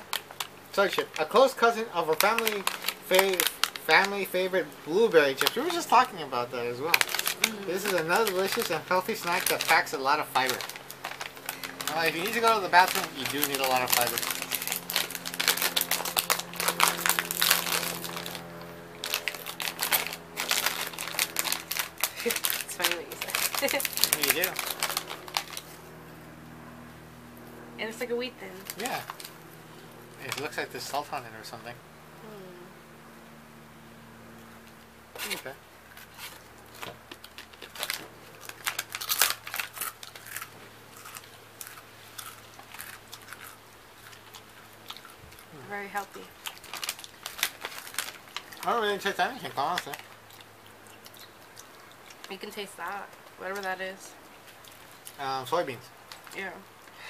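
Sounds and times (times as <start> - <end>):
plastic wrapper crinkling: 0.0 - 26.0, 28.6 - 29.4, 30.2 - 31.2, 35.2 - 52.5
crunching and chewing crisp chip: 0.0 - 27.0, 28.6 - 31.8, 34.4 - 57.0.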